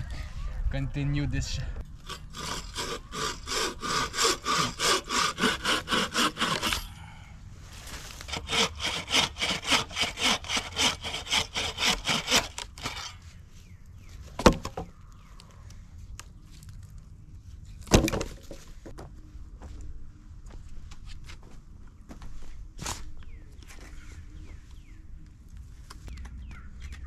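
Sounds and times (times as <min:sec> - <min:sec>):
hand saw cutting log: 0:02.0 - 0:06.9, 0:08.2 - 0:13.2.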